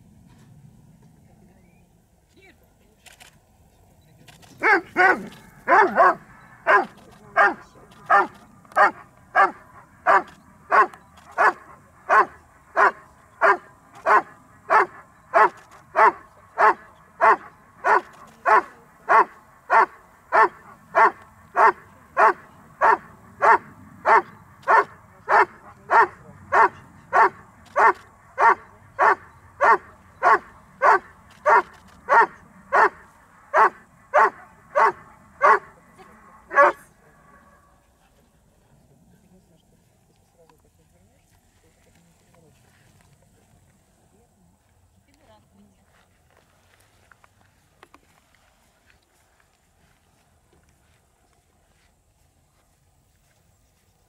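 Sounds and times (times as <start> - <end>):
dog barking: 4.6 - 35.8, 36.5 - 37.6.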